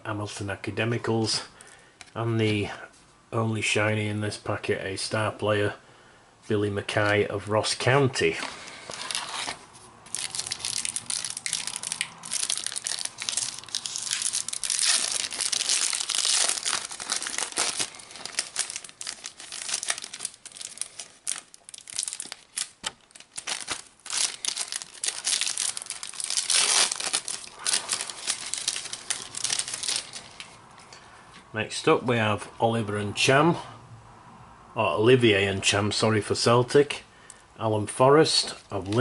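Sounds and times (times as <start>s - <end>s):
wrapper crinkling and tearing: 8.7s - 30.6s.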